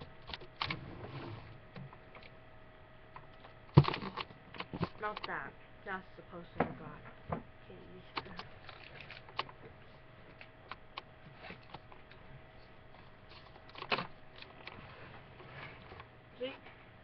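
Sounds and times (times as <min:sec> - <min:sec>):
webcam handling clicks and rustles: 0:08.1 - 0:09.6, 0:13.0 - 0:14.8.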